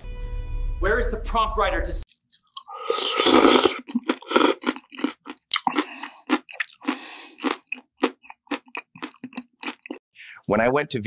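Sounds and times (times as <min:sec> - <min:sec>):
man chewing food: 0:02.1 - 0:10.0.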